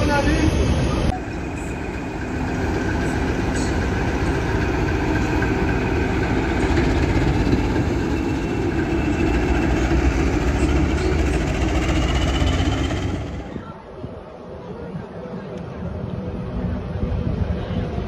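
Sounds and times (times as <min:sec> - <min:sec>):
diesel locomotive engine droning: 0:00.0 - 0:18.0.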